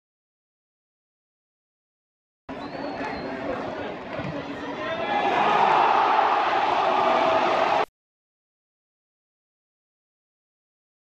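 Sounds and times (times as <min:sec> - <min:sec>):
crowd shouting and cheering: 0:02.5 - 0:07.9.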